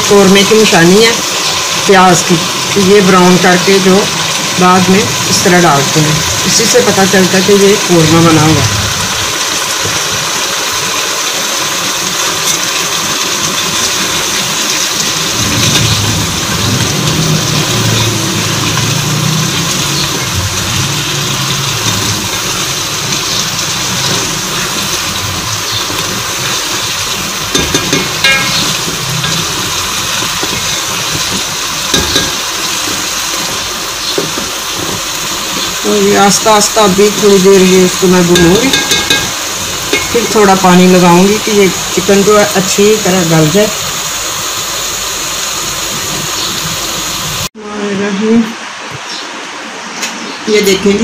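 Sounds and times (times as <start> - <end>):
chicken sizzling in a pot: 0.0 - 47.5
spoon knocking against a pot: 27.5 - 28.8, 31.9 - 32.4, 38.4 - 40.2.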